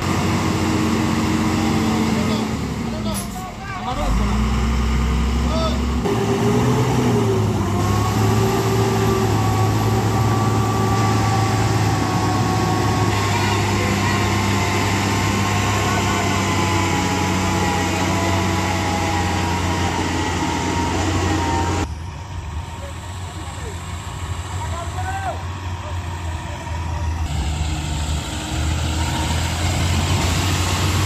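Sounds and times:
truck diesel engine droning: 0.0s - 31.0s
voices: 1.2s - 4.6s, 7.4s - 21.9s, 22.6s - 27.3s.

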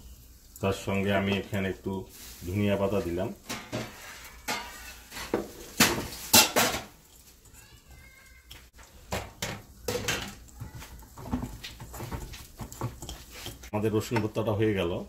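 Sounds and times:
knocking and scraping on bowl: 3.5s - 6.9s, 9.1s - 14.3s
fingers mashing garlic in a bowl: 10.5s - 14.2s.

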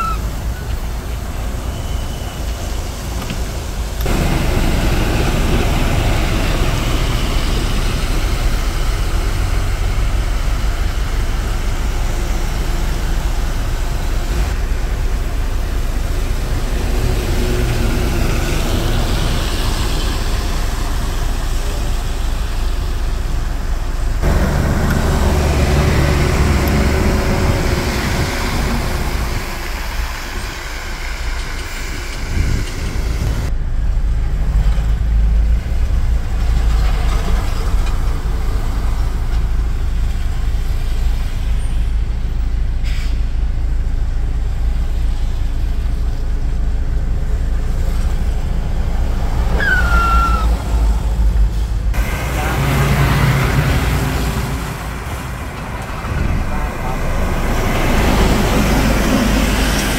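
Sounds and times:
high falling squeal: 0.0s - 2.9s, 49.5s - 51.0s
diesel trucks passing on wet road: 0.0s - 59.9s.

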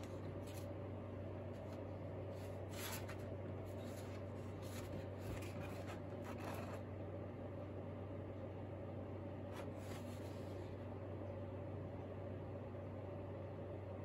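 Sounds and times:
paper rustling and sliding: 0.0s - 0.7s, 1.6s - 6.8s, 9.6s - 10.8s.

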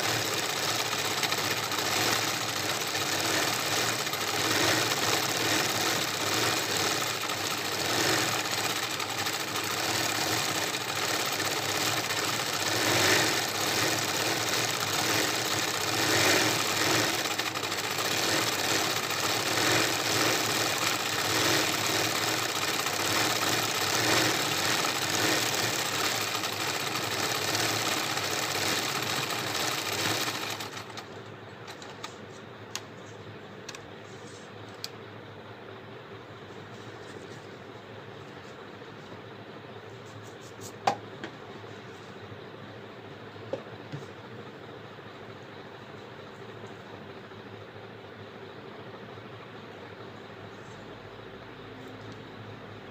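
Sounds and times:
sewing machine stitching: 0.0s - 31.1s.

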